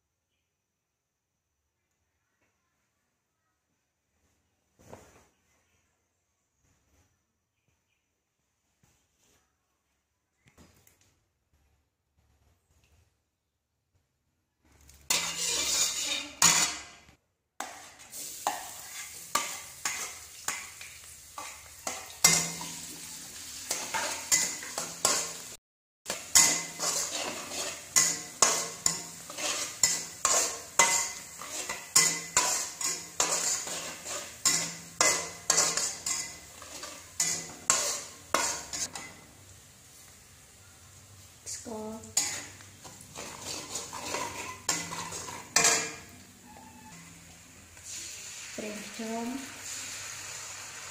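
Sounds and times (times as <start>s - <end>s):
oil sizzling: 14.7s - 50.9s
metal spatula scraping a wok: 15.0s - 17.0s, 17.6s - 20.7s, 21.3s - 39.2s, 42.1s - 47.1s.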